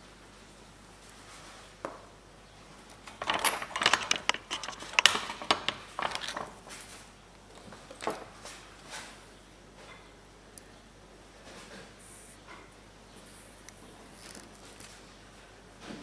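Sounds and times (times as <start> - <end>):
soldering tools clicks and rattles: 3.1 - 6.5.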